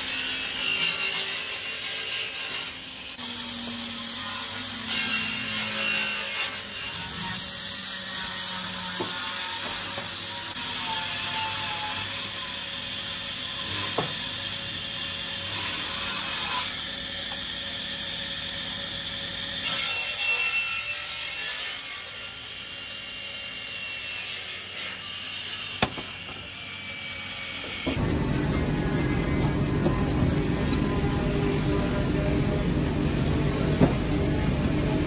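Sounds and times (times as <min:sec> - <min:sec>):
table saw cutting wood: 0:00.0 - 0:35.0
high saw whine: 0:25.5 - 0:35.0.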